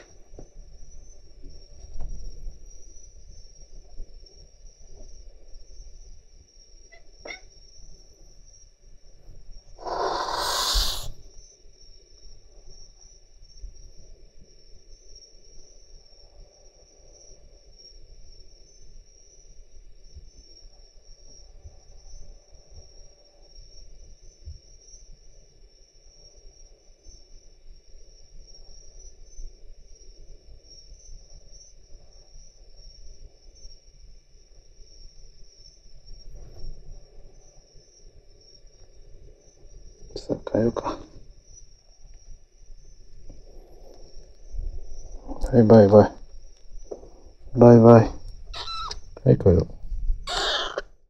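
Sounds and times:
cat hissing: 6.9s - 7.5s, 9.8s - 11.2s, 48.6s - 49.0s, 50.3s - 50.9s.

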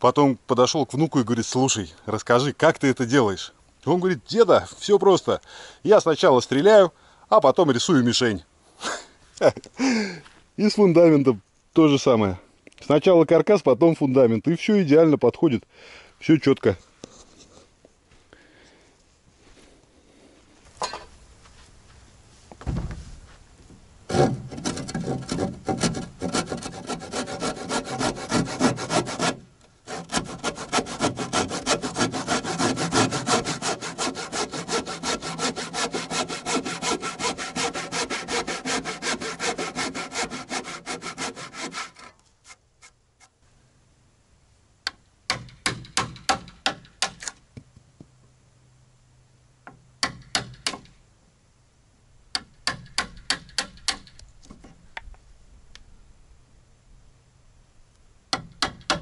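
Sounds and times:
hand saw cutting wood: 24.1s - 42.9s.

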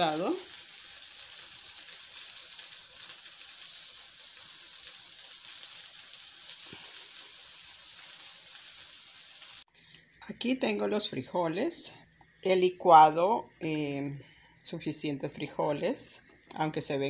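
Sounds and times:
food sizzling on a griddle: 0.0s - 9.7s.

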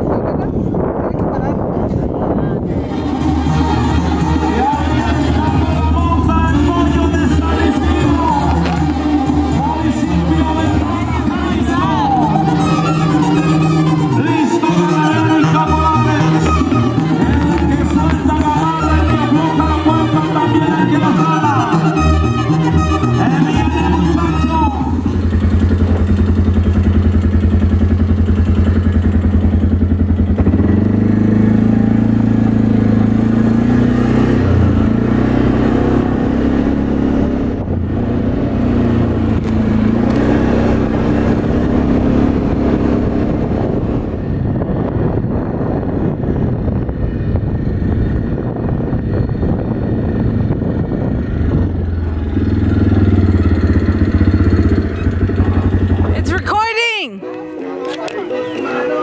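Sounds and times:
quad bike engine: 0.0s - 56.7s.

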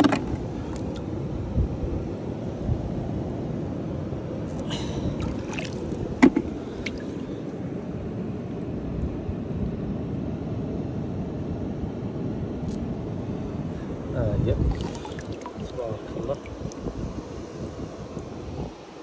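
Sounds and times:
seawater sloshing around rocks: 5.2s - 7.4s, 14.6s - 16.9s.

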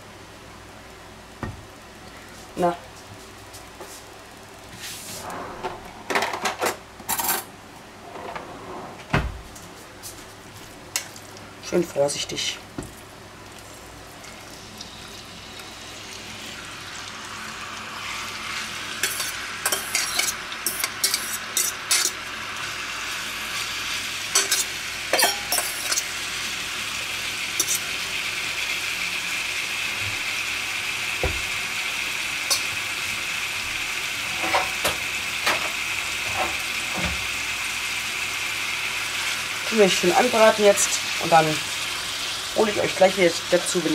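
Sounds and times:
meat sizzling in a frying pan: 13.0s - 43.9s
metal spoon clinking on bowl: 24.4s - 26.0s.

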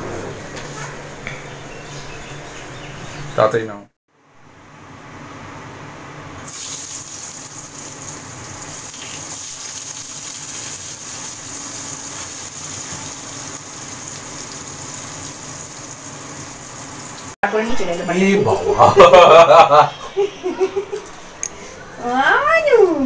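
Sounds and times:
potatoes sizzling in hot oil: 6.4s - 17.4s.

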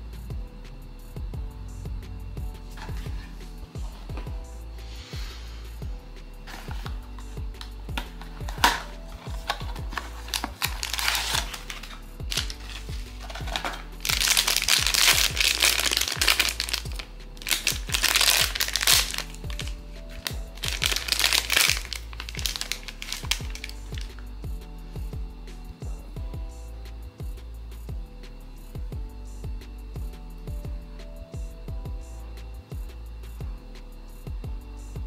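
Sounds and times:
background music with beat: 0.0s - 35.0s
foil bag crinkling: 8.0s - 24.2s.

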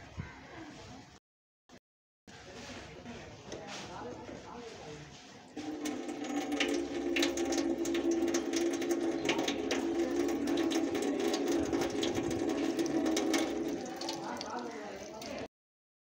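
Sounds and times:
tap water pouring into metal sink: 5.6s - 15.5s.

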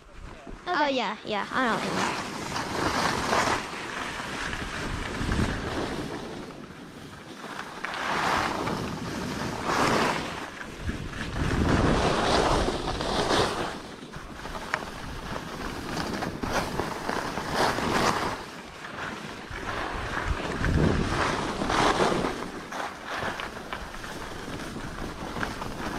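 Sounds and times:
wind on microphone: 0.0s - 7.4s, 8.0s - 18.6s, 19.2s - 25.9s
skis scraping over snow: 0.1s - 25.9s.

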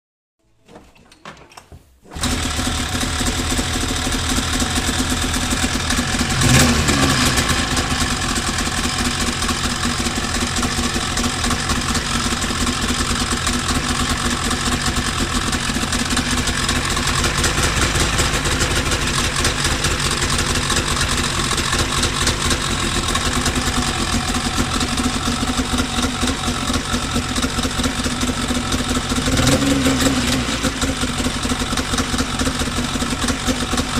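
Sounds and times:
snowmobile engine starting and idling: 2.1s - 33.9s.

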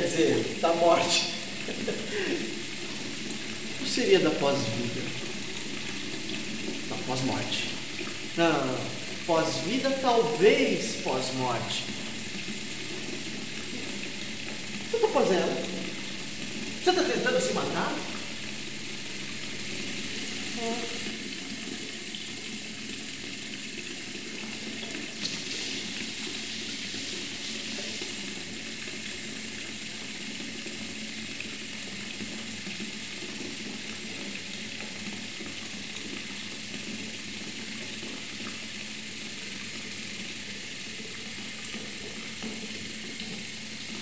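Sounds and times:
tap water pouring into sink: 0.0s - 44.0s.

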